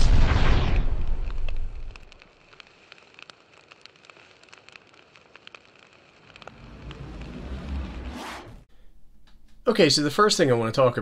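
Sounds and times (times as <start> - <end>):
low rumble: 0.0 - 2.1, 6.4 - 8.7
fire crackling: 0.0 - 8.7.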